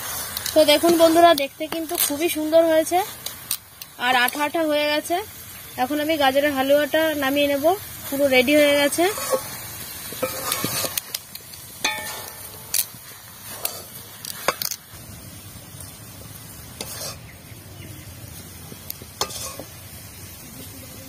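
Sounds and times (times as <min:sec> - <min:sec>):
low steady background noise: 0:00.0 - 0:21.0
metal ladle scraping a pan: 0:08.1 - 0:14.9, 0:16.7 - 0:17.3, 0:19.1 - 0:19.9.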